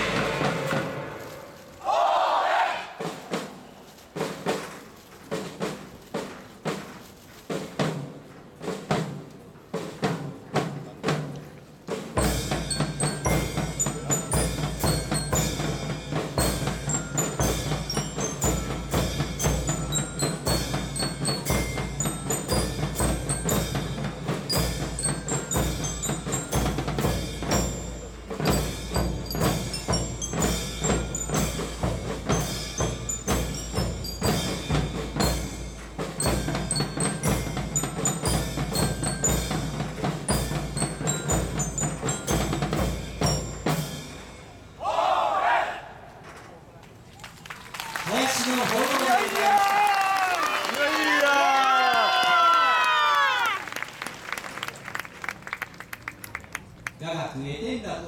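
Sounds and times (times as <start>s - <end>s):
deep drum beat: 0.0s - 1.4s, 12.2s - 43.9s
cymbal strokes: 0.0s - 1.9s
high bell-like melody: 12.4s - 44.5s.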